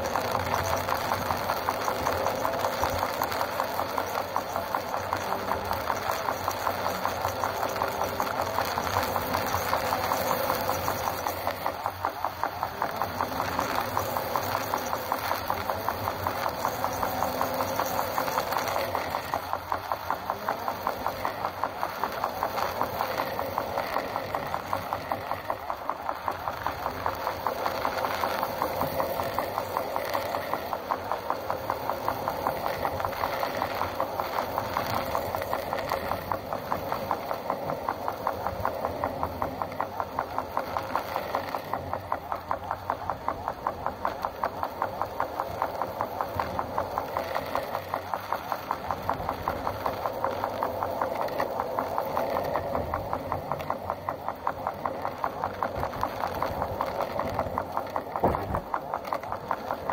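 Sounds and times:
vehicle engine running: 0:00.0 - 0:59.9
tyres on wet road: 0:54.9 - 0:59.9.

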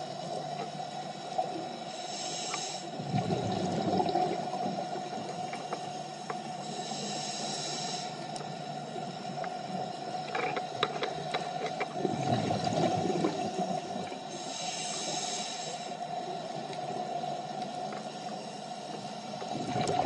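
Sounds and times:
regulator inhale hiss: 0:01.0 - 0:03.1, 0:05.2 - 0:10.3, 0:13.3 - 0:19.4
exhaled bubbles rumbling: 0:03.0 - 0:05.6, 0:11.9 - 0:14.3, 0:19.3 - 0:20.0.

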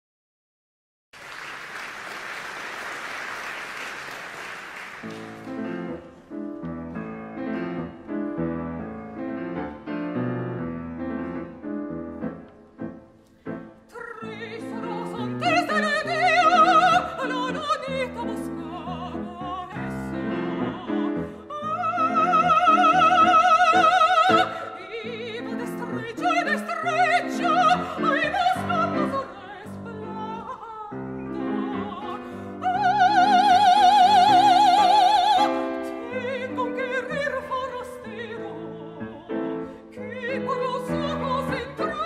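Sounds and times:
piano playing: 0:05.0 - 0:42.0
operatic singer with vibrato: 0:13.9 - 0:42.0.

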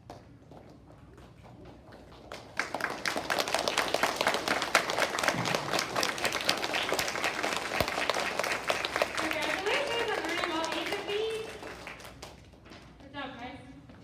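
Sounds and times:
children clapping: 0:01.2 - 0:12.6.

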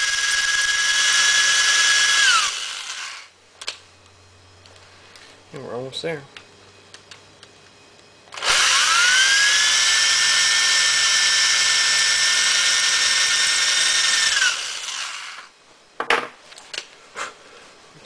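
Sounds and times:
electric drill whining: 0:00.0 - 0:03.3, 0:08.3 - 0:15.5.

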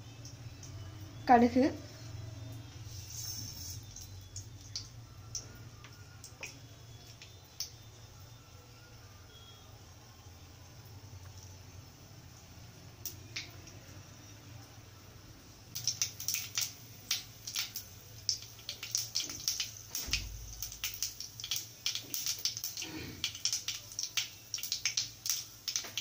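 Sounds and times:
seeds popping in hot oil: 0:02.4 - 0:07.8, 0:15.7 - 0:26.0.

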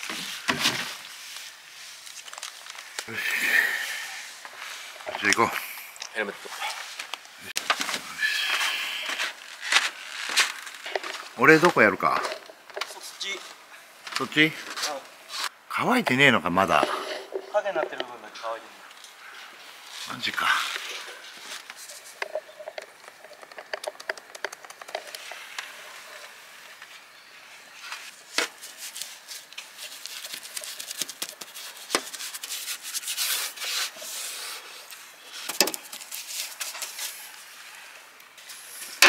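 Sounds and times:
paint brush scrubbing on metal: 0:27.9 - 0:39.0.

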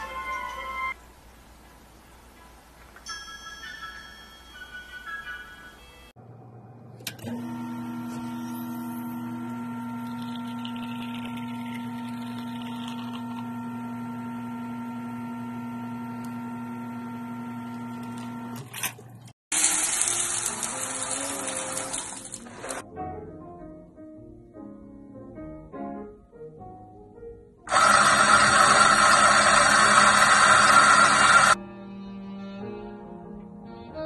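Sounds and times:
espresso machine pump humming: 0:07.1 - 0:18.7, 0:27.7 - 0:31.6
coffee grinder grinding: 0:07.3 - 0:18.6, 0:19.5 - 0:22.8, 0:27.7 - 0:31.6.

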